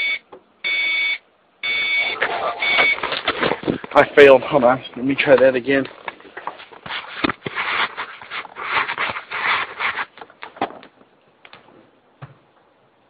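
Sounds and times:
rustling and scraping: 0:02.2 - 0:12.0.

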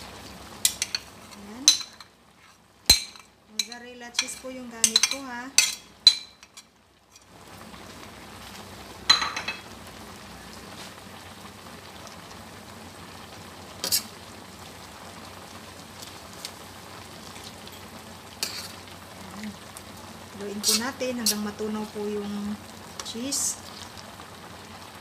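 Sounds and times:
sauce simmering with hiss: 0:00.0 - 0:25.0
metal spatula clinking on pan: 0:02.9 - 0:06.7.

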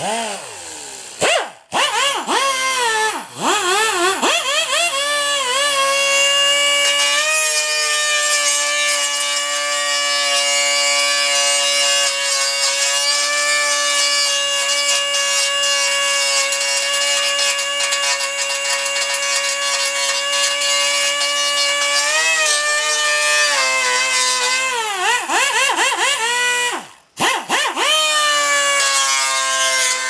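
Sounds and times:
die grinder whine: 0:00.0 - 0:30.0
grinding into sheet metal: 0:03.1 - 0:26.8.

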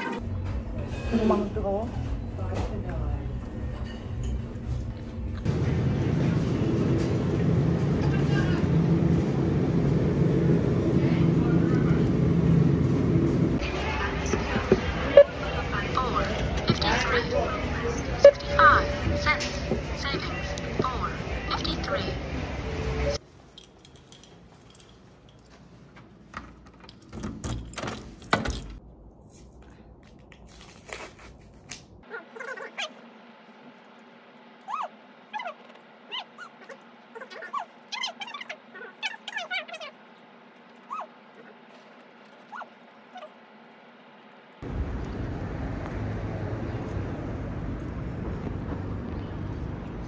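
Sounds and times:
city street traffic rumble: 0:00.0 - 0:27.6, 0:43.4 - 0:50.0
pet whimpering: 0:34.7 - 0:40.0.

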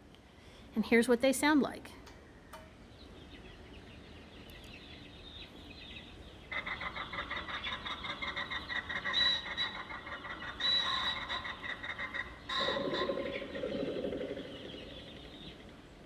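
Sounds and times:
harsh pulsing pheasant calls: 0:05.1 - 0:16.0.

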